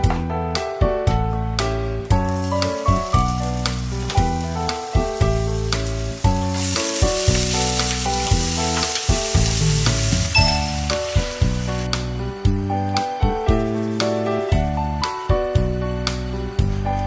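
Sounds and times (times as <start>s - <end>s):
background music: 0.0s - 17.0s
food sizzling in frying pan: 2.1s - 12.2s.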